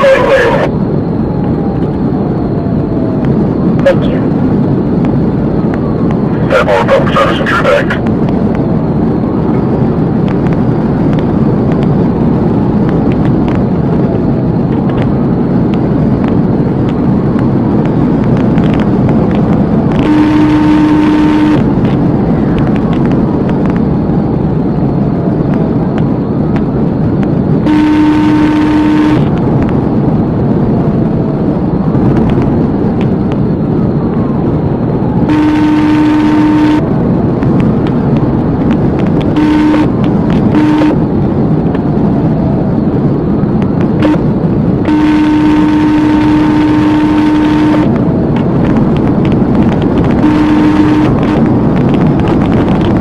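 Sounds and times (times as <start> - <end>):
car engine and road noise: 0.0 - 53.0
car horn blasts: 20.0 - 21.8, 27.6 - 29.4, 35.2 - 37.0, 39.1 - 41.2, 44.0 - 48.0, 50.1 - 51.5.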